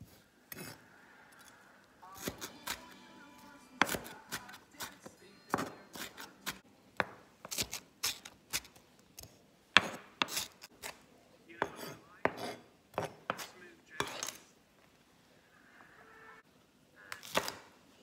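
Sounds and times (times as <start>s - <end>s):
knife chopping on wooden board: 3.8s - 8.7s, 9.8s - 11.0s, 11.6s - 14.3s.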